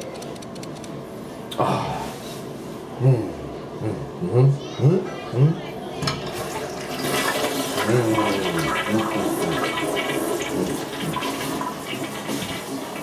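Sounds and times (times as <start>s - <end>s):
toilet flushing with gurgle: 6.0s - 13.0s.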